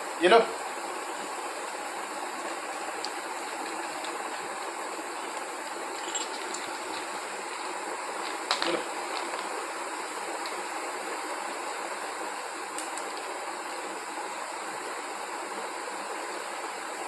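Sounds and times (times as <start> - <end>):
dog crunching dry kibble: 5.4 - 9.6.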